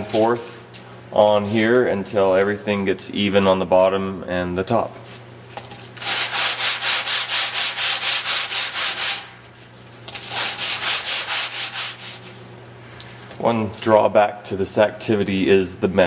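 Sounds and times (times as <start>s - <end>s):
foam rubbed on grip tape: 6.0s - 9.3s, 10.1s - 12.4s.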